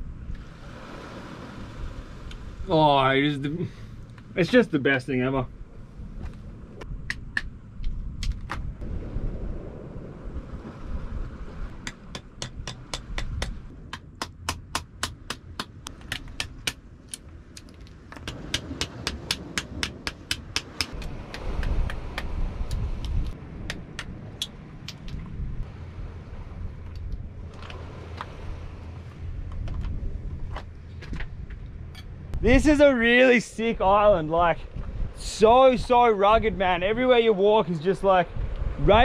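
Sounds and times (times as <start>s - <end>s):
wind rumbling on microphone: 0.0s - 39.0s
knocker tapping oysters on rock: 11.8s - 22.3s.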